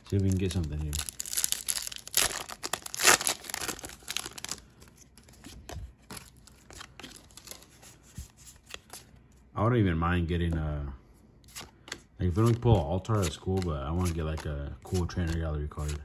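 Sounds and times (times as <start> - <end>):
foil wrapper tearing and crinkling: 0.0 - 4.6
cards clicking and rustling: 0.0 - 9.2, 11.5 - 16.0.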